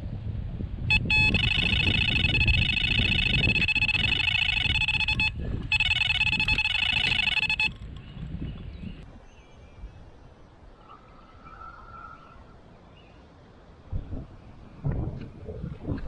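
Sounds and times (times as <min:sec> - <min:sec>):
wind rumble on microphone: 0:00.0 - 0:16.0
bite alarm high-pitched beeps: 0:00.9 - 0:07.8.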